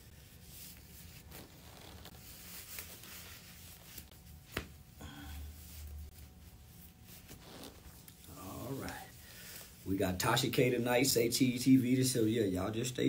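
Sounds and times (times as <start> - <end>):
cloth rustling: 0.0 - 10.0.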